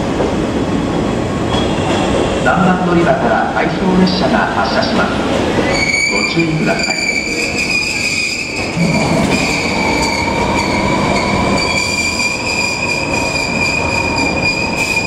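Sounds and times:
rumble of moving train cars: 0.0s - 15.0s
train wheels squealing: 5.6s - 15.0s.

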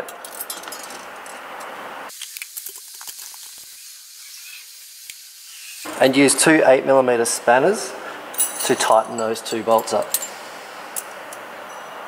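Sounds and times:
steady hiss: 2.1s - 8.4s.

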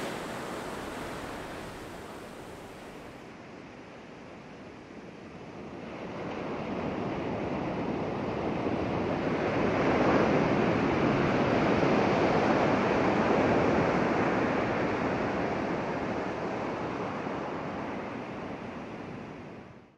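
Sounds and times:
ocean surf breaking on beach: 0.0s - 3.2s.

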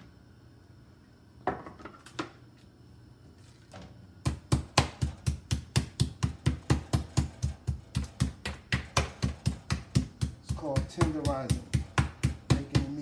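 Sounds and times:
meat tenderizer pounding meat: 4.2s - 13.0s.

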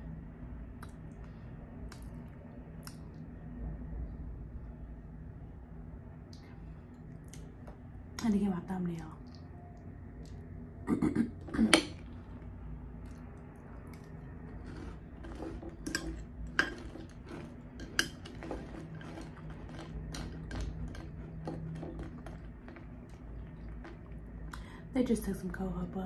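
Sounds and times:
chewing crunchy cereal: 12.0s - 24.7s.

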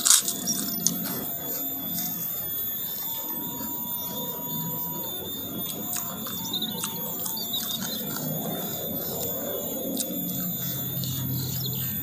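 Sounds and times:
chewing with crunches: 0.0s - 2.1s, 5.5s - 12.0s
birds chirping: 0.0s - 12.0s.

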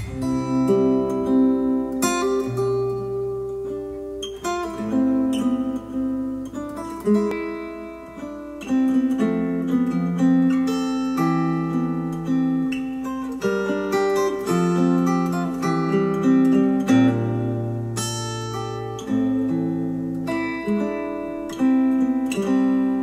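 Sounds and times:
acoustic guitar melody: 0.0s - 23.0s.

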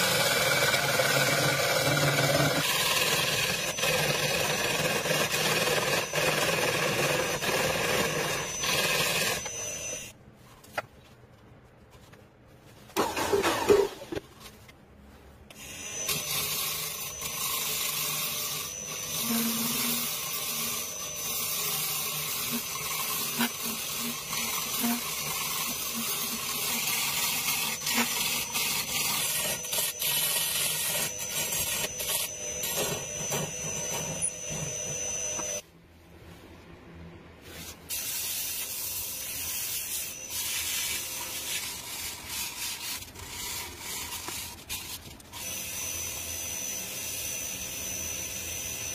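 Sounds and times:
hollowing tool scraping spinning wood: 0.0s - 10.1s, 15.6s - 35.6s, 39.9s - 48.9s
sandpaper rubbing spinning wood: 16.0s - 35.6s, 37.5s - 45.2s.

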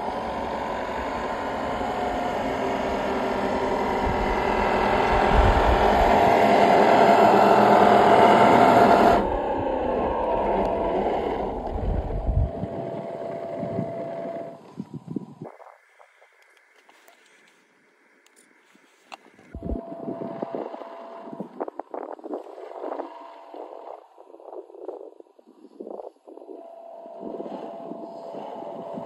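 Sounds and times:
rc car motor whirring: 26.8s - 29.0s.

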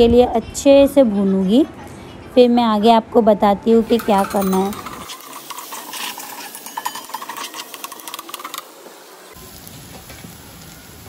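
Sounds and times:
spoon scraping a pan: 3.8s - 8.9s
onions sizzling in oil: 3.9s - 11.0s.

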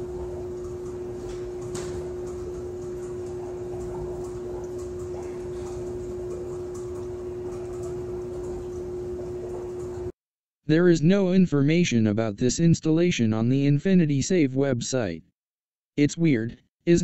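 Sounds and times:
faint ticks and clicks: 0.0s - 10.1s
machine humming: 0.0s - 10.1s.

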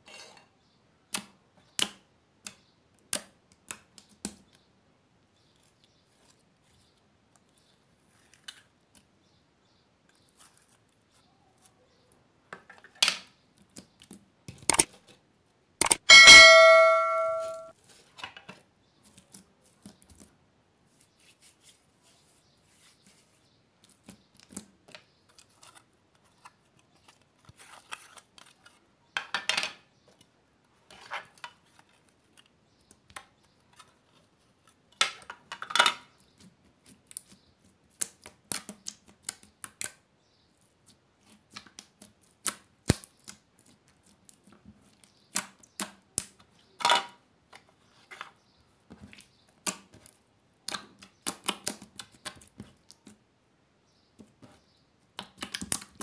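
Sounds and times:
slime clicking and squelching: 41.2s - 46.4s.

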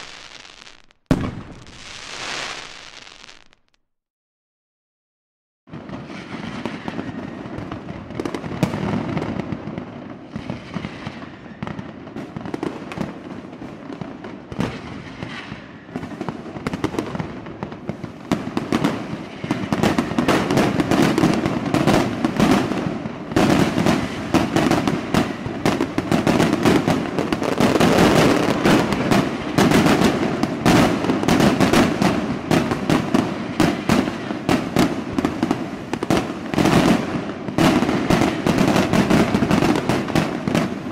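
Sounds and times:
firework shells bursting: 0.0s - 3.8s.

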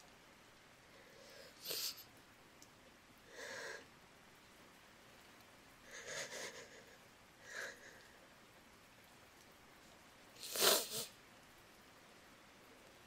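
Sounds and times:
woman breathing softly: 0.8s - 2.1s, 3.3s - 3.9s.

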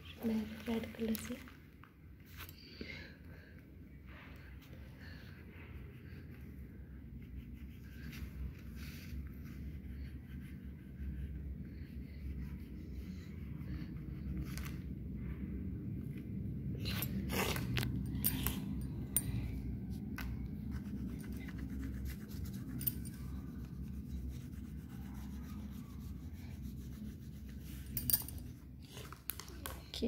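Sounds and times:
low steady rumble: 0.0s - 30.0s
crayon scratching on paper: 20.5s - 28.0s.

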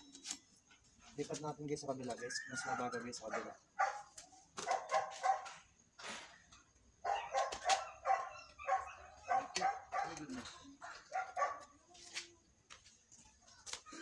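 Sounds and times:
dog yapping: 2.6s - 5.6s, 7.1s - 11.6s.

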